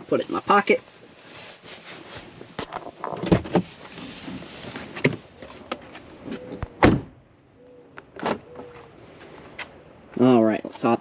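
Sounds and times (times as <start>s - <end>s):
person moving in car seat: 0.3s - 6.8s
car door opening: 3.0s - 7.2s, 8.0s - 8.9s.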